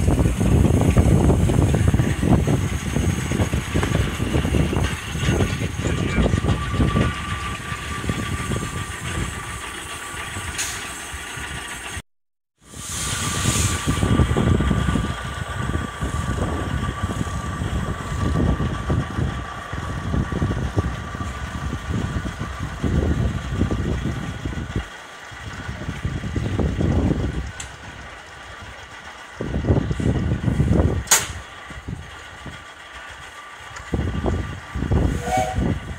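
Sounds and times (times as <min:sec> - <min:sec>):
steam hiss: 0:00.0 - 0:12.0, 0:12.6 - 0:18.5, 0:30.0 - 0:35.9
steam locomotive moving off: 0:00.0 - 0:12.0, 0:12.6 - 0:35.9
diesel locomotive rumbling: 0:00.0 - 0:35.9.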